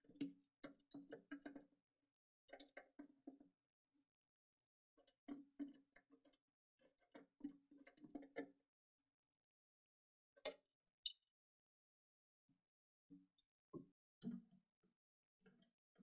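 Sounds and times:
small metallic clicks: 2.5 - 3.1.

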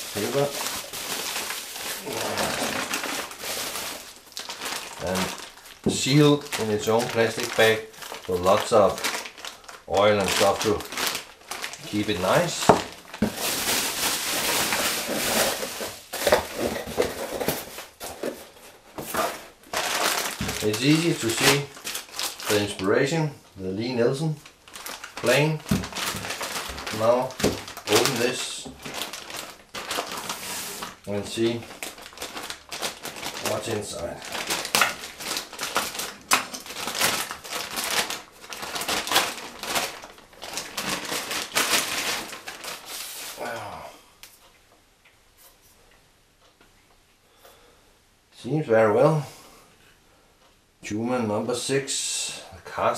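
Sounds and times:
bubble wrap and plastic crinkling: 0.0 - 43.6.

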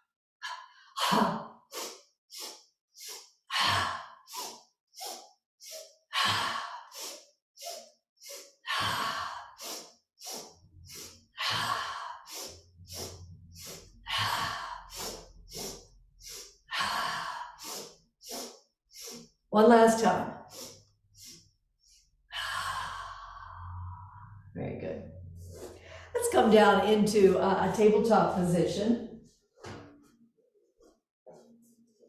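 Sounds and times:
woman breathing sharp inhales: 0.5 - 19.4, 20.4 - 24.4, 25.6 - 26.2
forceful exhale: 1.7 - 19.3, 22.4 - 24.5.

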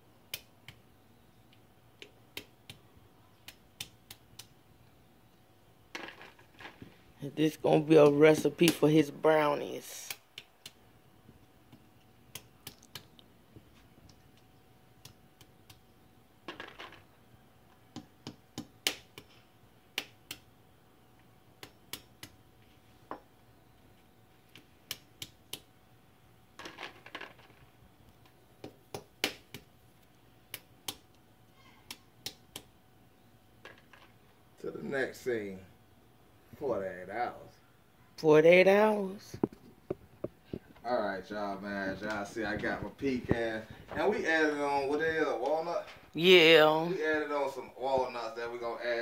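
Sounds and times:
hammer tapping pecan shells: 11.4 - 13.2, 17.7 - 20.5, 28.2 - 29.7.

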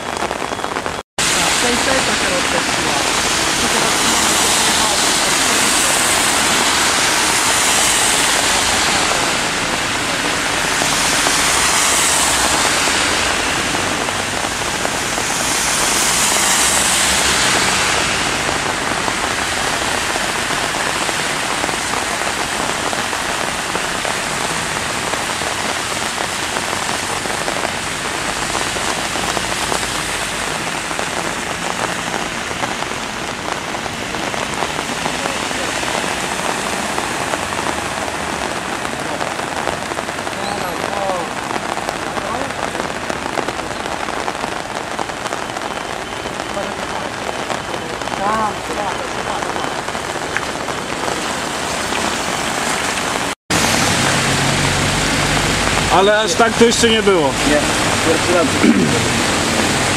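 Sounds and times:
rain falling on street: 0.0 - 59.9
tyres swishing through water: 1.2 - 32.7.

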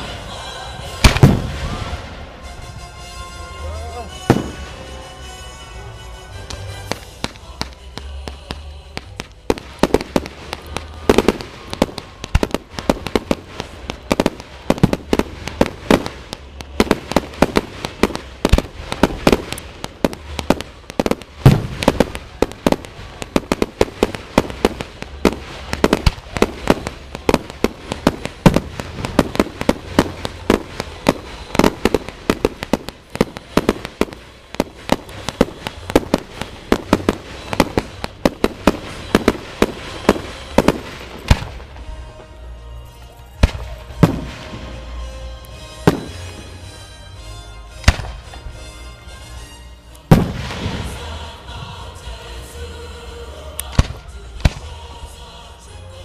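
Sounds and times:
fireworks bursts and bangs: 0.0 - 2.5, 3.9 - 4.9, 6.5 - 42.0, 43.4 - 45.0, 45.8 - 46.7, 50.1 - 51.4, 53.6 - 54.9
loud fireworks booms: 1.0 - 2.8, 4.2 - 4.8, 6.9 - 42.0, 43.4 - 44.9, 45.8 - 46.7, 50.1 - 51.8, 53.7 - 54.8.

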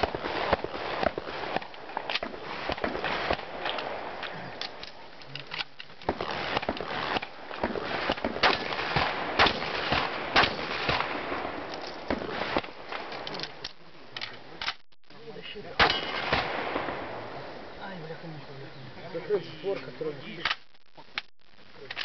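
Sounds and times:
shotgun shots: 0.0 - 4.2, 6.0 - 13.2, 15.8 - 17.2.

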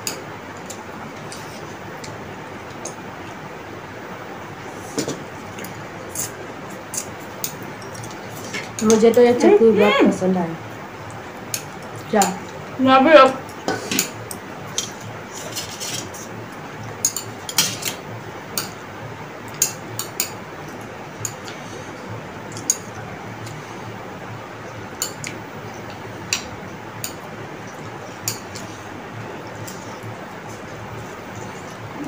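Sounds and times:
chopsticks clicking on plates: 11.1 - 12.5, 18.6 - 18.8, 22.5 - 23.6, 25.0 - 28.7.

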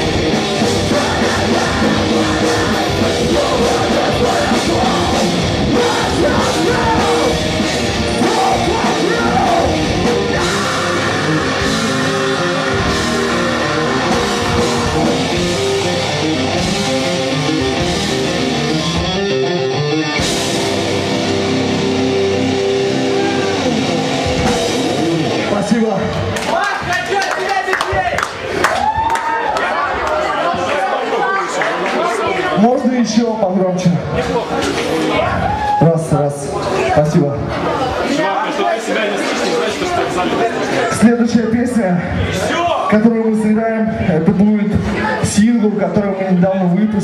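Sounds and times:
metalcore band playing live: 0.0 - 26.5.

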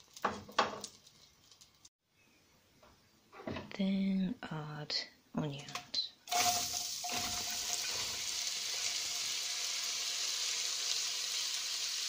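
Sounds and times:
onions sizzling in butter: 6.3 - 12.0.

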